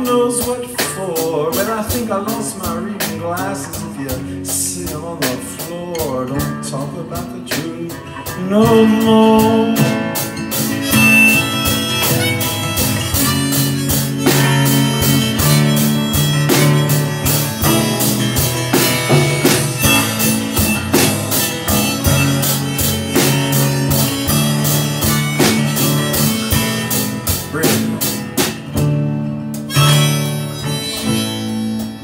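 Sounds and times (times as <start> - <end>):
drum kit beat: 0.0 - 32.0
strummed acoustic guitar: 0.0 - 32.0
harmonica: 8.1 - 32.0.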